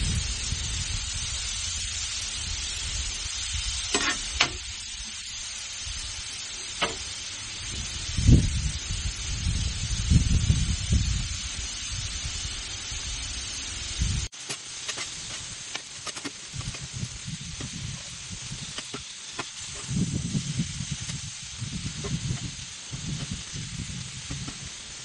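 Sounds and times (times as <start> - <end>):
meat sizzling on griddle: 0.0 - 25.0
metal spatula scraping griddle: 3.9 - 4.6, 14.4 - 17.0.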